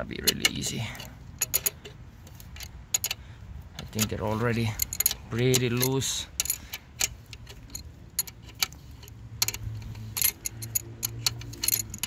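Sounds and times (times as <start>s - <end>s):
wrench clinking against metal tool: 0.2s - 3.2s, 3.8s - 12.0s.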